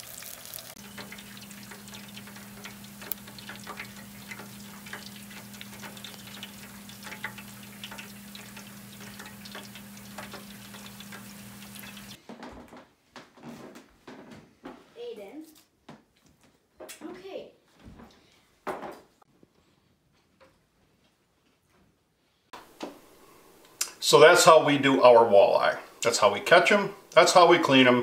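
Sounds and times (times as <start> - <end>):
oil crackling in deep fryer: 0.0 - 12.2
low hum: 0.8 - 12.2.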